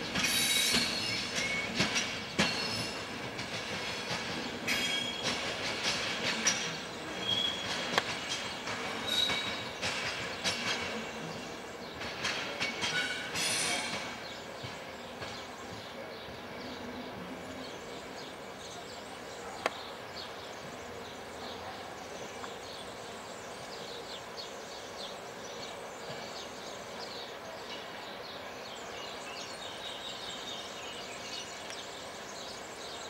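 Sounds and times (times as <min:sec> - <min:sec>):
train wheels squealing: 0:00.0 - 0:11.4, 0:12.2 - 0:14.4
wheels clunking over rail joints: 0:00.0 - 0:16.7.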